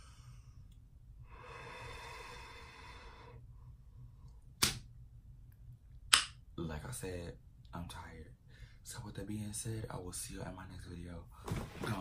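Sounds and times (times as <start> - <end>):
person exhaling: 1.3 - 3.4
sharp click: 4.6 - 4.8.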